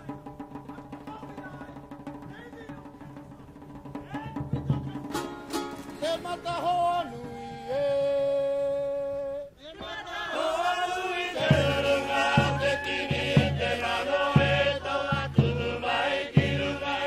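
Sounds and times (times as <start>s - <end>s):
plucked string backing: 4.7s - 7.7s
person singing: 6.0s - 9.6s
several voices singing: 6.4s - 17.0s.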